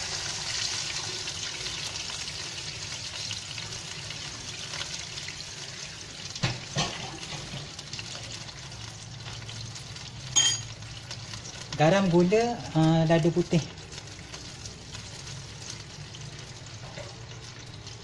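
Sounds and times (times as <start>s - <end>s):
oil and water sizzling in a wok: 0.0s - 18.0s
metal clink: 10.4s - 10.7s.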